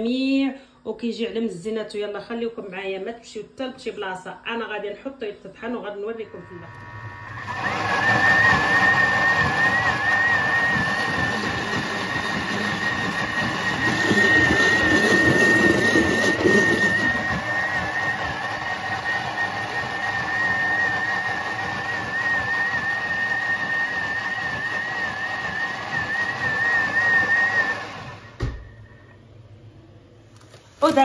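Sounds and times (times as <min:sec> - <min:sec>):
food processor motor whine: 0:06.4 - 0:29.2
ingredients churning: 0:07.3 - 0:27.7.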